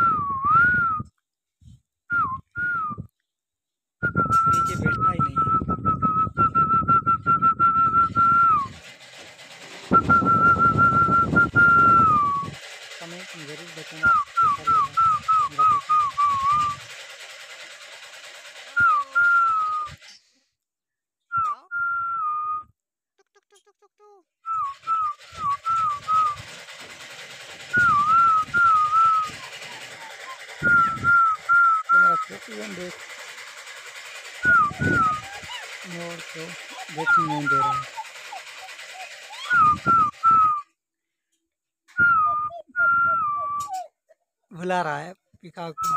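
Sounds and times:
person whistling short notes: 0:00.0 - 0:01.1, 0:02.1 - 0:03.1, 0:04.0 - 0:08.8, 0:09.9 - 0:12.6, 0:14.0 - 0:16.8, 0:18.8 - 0:20.3, 0:21.3 - 0:22.7, 0:24.5 - 0:26.5, 0:27.7 - 0:32.4, 0:34.4 - 0:35.5, 0:36.7 - 0:38.0, 0:39.3 - 0:40.8, 0:41.9 - 0:43.9.

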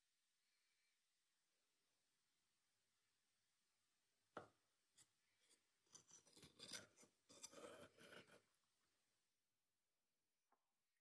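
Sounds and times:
knife cutting and scraping: 0:05.0 - 0:08.5.

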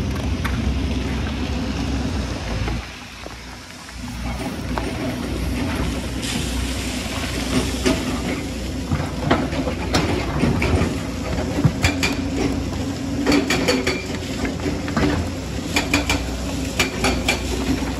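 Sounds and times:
excavator diesel engine running: 0:00.0 - 0:17.9
bucket and rocks clanking: 0:04.2 - 0:17.9.

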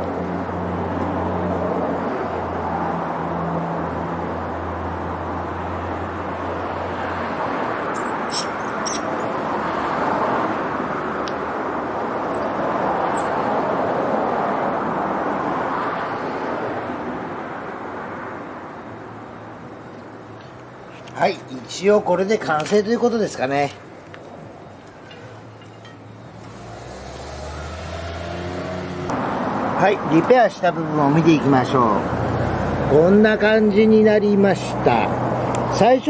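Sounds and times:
road traffic passing: 0:00.0 - 0:36.0
engine hum: 0:23.8 - 0:29.8.

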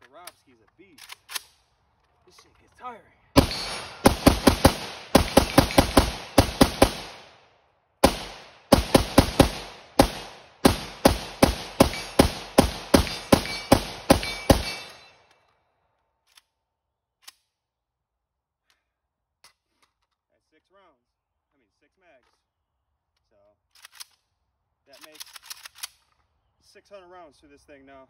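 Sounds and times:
rifle firing rapid shots: 0:03.4 - 0:07.4, 0:08.0 - 0:15.2.

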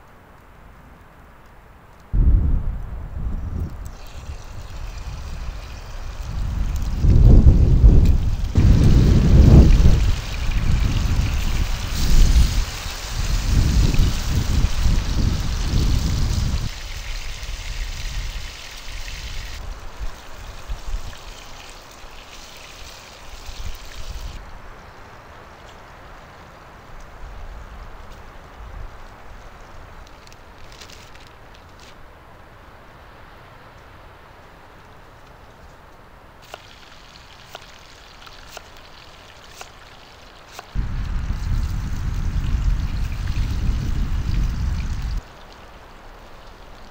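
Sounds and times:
meat sizzling in a frying pan: 0:03.9 - 0:24.4.

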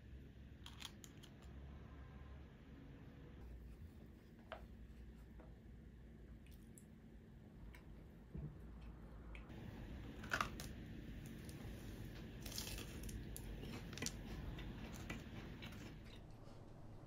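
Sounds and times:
low room hum: 0:00.0 - 0:17.0
chewing: 0:12.2 - 0:16.6.

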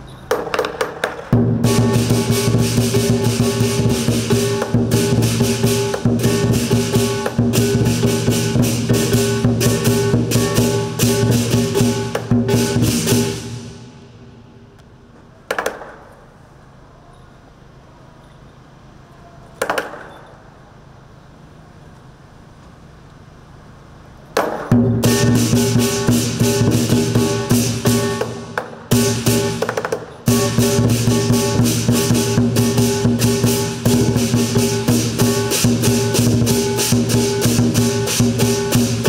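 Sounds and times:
lion dance percussion band: 0:00.0 - 0:14.2, 0:24.6 - 0:39.0.

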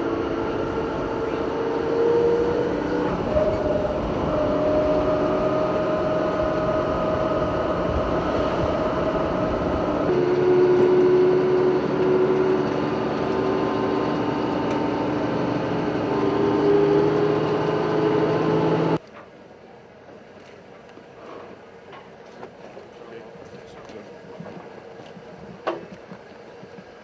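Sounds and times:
vehicle engine droning: 0:00.0 - 0:19.0
whining tones: 0:00.0 - 0:19.0.

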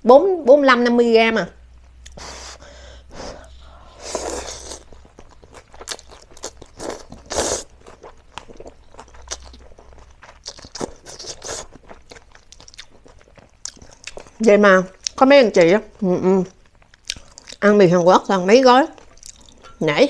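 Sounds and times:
wet chewing and lip-smacking: 0:04.1 - 0:15.2, 0:15.9 - 0:17.6, 0:18.9 - 0:19.8.

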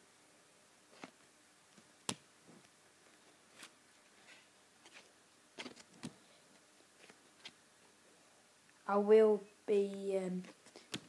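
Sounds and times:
trading cards clicking and rustling: 0:03.6 - 0:06.2.

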